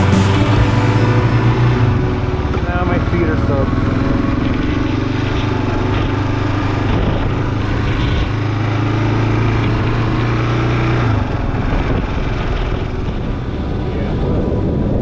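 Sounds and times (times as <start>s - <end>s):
motorcycle engine running: 0.0s - 15.0s
tyre noise on wet road: 0.0s - 15.0s.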